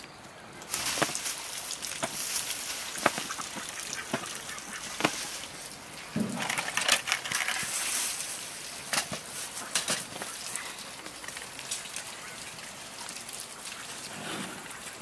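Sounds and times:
ducks quacking: 2.7 - 5.7, 11.7 - 15.0.

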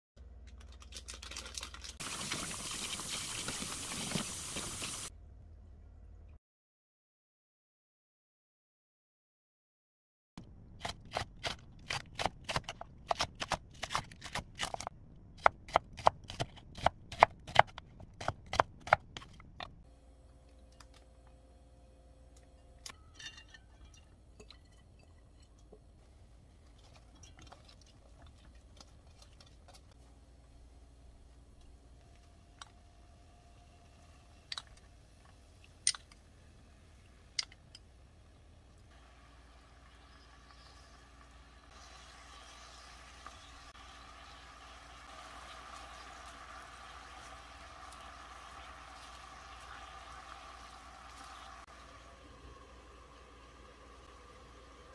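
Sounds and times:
faint steady hum: 19.2 - 54.9.

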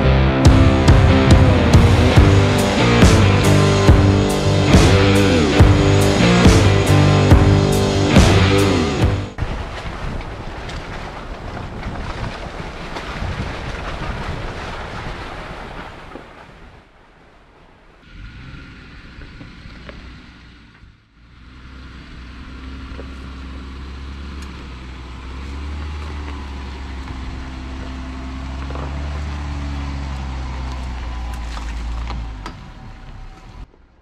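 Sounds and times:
car engine running: 0.0 - 9.4, 18.1 - 33.7.

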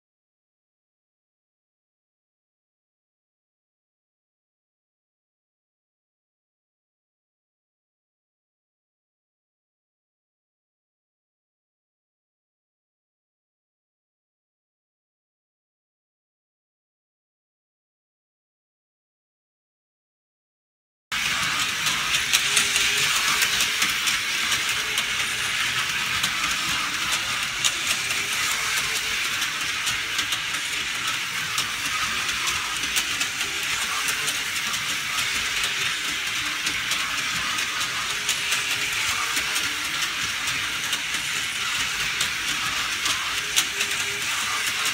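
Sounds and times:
toy race cars whirring on rails: 21.2 - 44.9.

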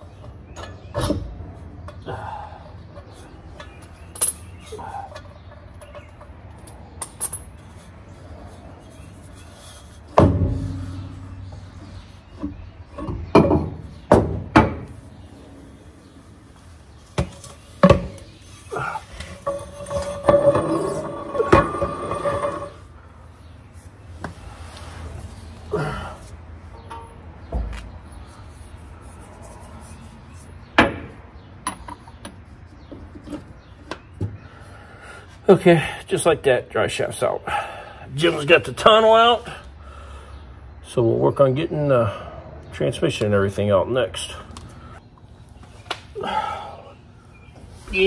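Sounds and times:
metal clunks: 10.1 - 11.6, 12.4 - 15.0, 19.2 - 22.7
sharp metal knocks: 10.2 - 11.4.

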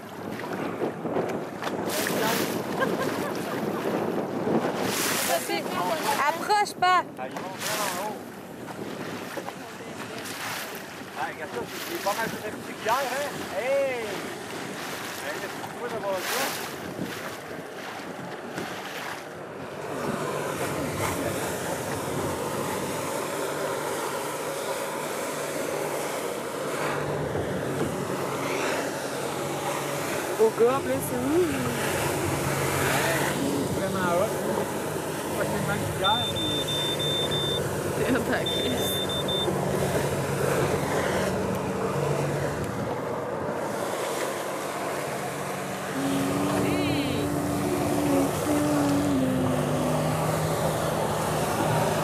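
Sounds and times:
wind on microphone: 0.0 - 19.3
choppy water rushing: 0.0 - 52.0
watercraft engine drone: 0.0 - 52.0
waves: 0.0 - 52.0
wind: 0.0 - 52.0.

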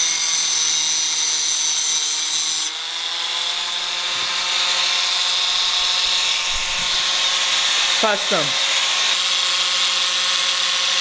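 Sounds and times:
power tool cutting metal: 0.0 - 11.0.

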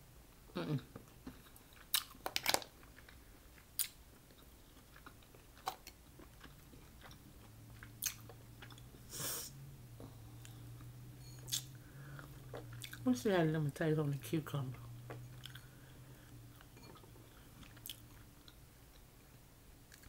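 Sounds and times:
low steady hum: 0.0 - 20.0
chewing food: 1.0 - 9.0, 10.0 - 13.1, 14.6 - 19.1.

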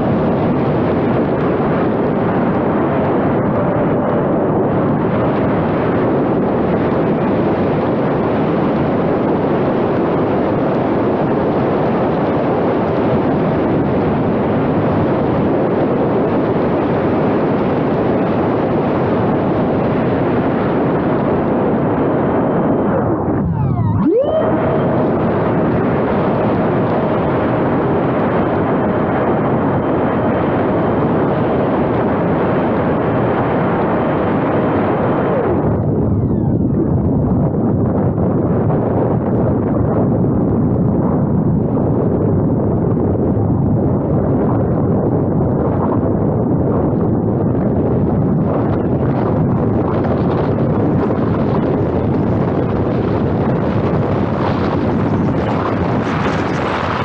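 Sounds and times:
wind rushing over microphone: 0.0 - 57.0.

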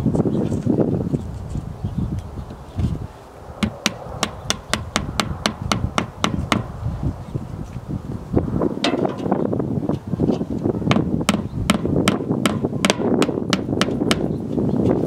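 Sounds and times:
hammer tapping plastic anchor: 10.9 - 14.2.

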